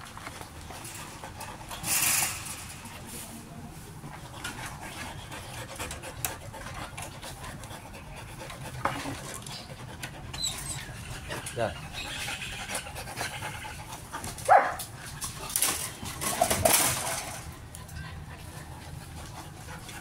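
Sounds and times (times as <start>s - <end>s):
dogs panting: 0.1s - 3.1s, 4.0s - 20.0s.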